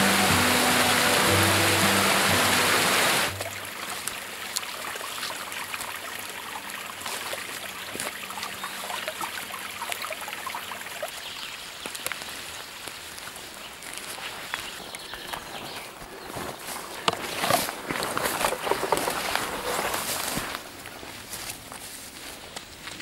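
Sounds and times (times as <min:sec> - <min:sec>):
background music: 0:00.0 - 0:03.8
creek water rushing: 0:00.0 - 0:21.9
faint crackles and ticks: 0:06.6 - 0:23.0.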